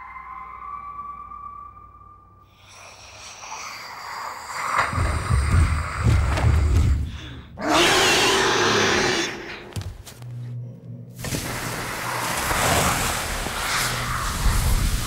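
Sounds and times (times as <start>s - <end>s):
loud rushing hiss: 11.2s - 15.0s.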